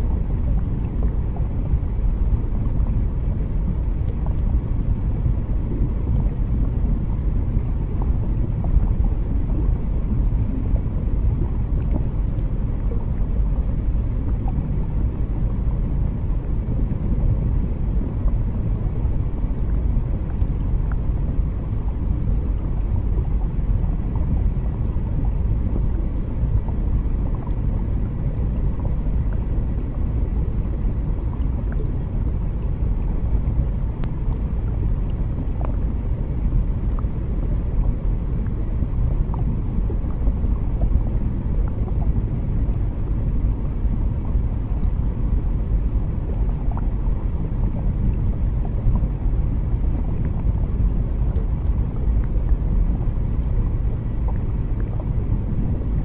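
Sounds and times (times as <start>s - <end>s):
faint ticks and crackles: 0.0s - 56.0s
low underwater rumble: 0.0s - 56.0s.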